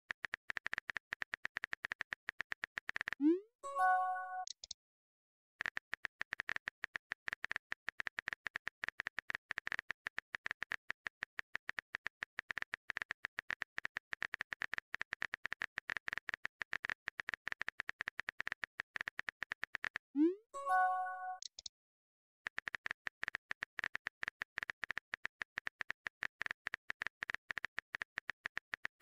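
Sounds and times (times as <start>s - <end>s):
phone keyboard typing clicks: 0.1s - 3.2s, 5.6s - 20.0s, 22.5s - 29.0s
message chime: 3.6s - 4.5s, 20.6s - 21.4s.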